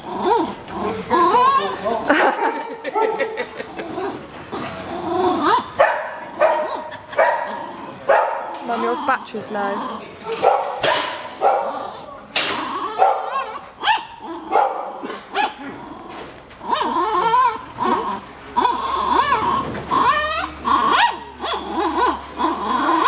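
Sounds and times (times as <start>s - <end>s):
dog whining and yelping: 0.0s - 2.0s, 8.5s - 23.0s
dog barking: 2.9s - 3.3s, 5.8s - 8.6s, 10.3s - 11.9s, 12.8s - 15.6s.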